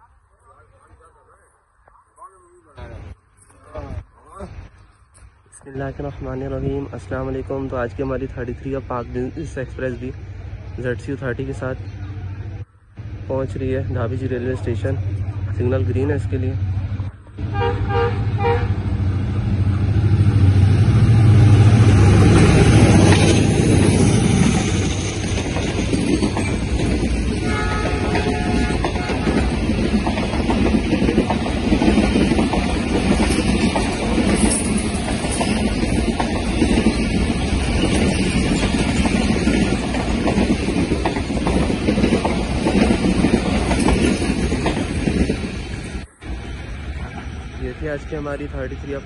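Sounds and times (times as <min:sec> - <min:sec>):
locomotive engine drone: 0:00.0 - 0:49.0
wheels rushing on rail: 0:00.0 - 0:49.0
train horn toot: 0:17.4 - 0:18.9, 0:27.4 - 0:29.5.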